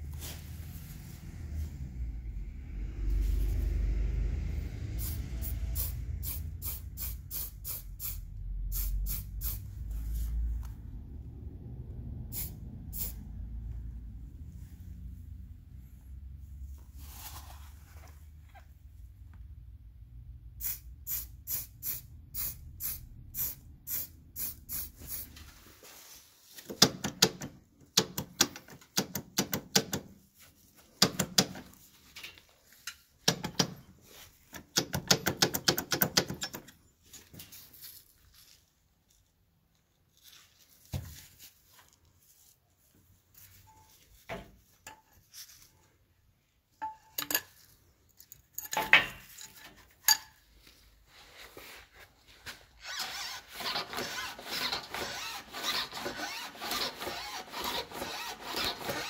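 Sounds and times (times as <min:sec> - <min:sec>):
spray paint can spraying: 0:05.8 - 0:09.8, 0:12.3 - 0:13.2, 0:20.6 - 0:25.3.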